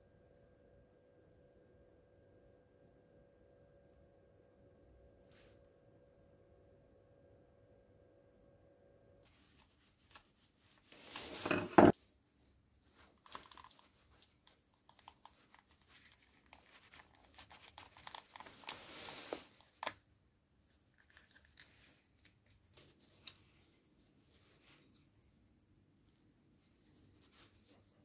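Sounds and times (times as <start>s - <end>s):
crackling scrape: 10.8s - 12.0s, 16.6s - 19.6s.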